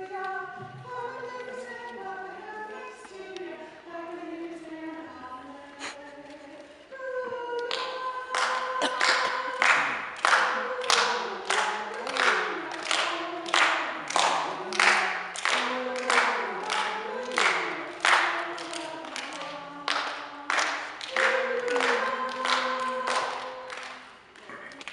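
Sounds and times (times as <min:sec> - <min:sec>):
children's choir singing: 0:00.0 - 0:24.9
hand clapping: 0:07.7 - 0:24.9.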